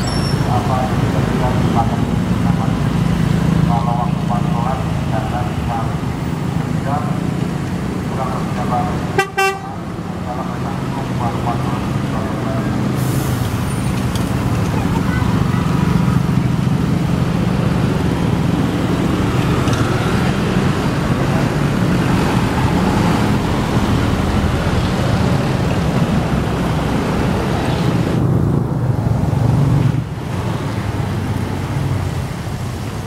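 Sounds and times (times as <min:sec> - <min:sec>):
bus diesel engines passing: 0:00.0 - 0:33.0
tyres hissing on wet road: 0:10.6 - 0:28.2, 0:30.2 - 0:33.0.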